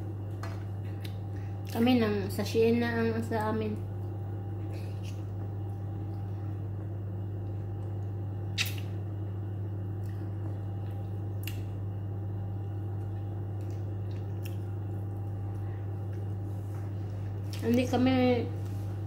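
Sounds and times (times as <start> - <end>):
low electrical hum: 0.0 - 19.0
squishy eating sounds: 8.5 - 9.0, 13.0 - 18.0.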